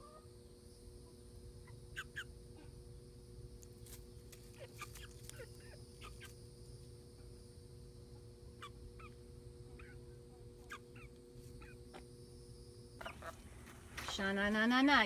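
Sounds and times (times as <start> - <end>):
chickens chirping: 4.3 - 6.5, 8.5 - 12.1, 13.0 - 14.0.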